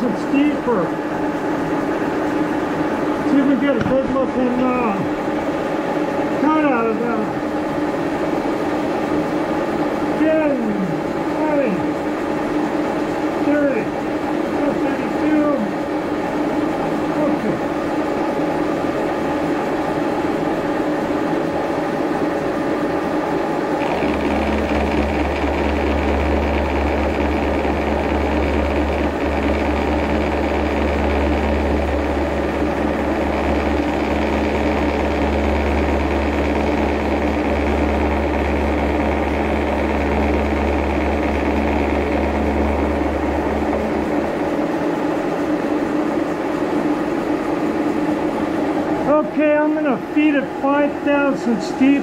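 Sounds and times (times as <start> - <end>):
milling machine grinding: 0.0 - 49.8
deep hum: 23.6 - 52.0.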